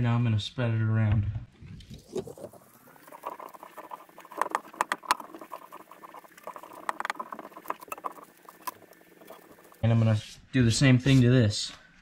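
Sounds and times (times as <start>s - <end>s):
iron rubbing over wax: 2.0s - 9.8s.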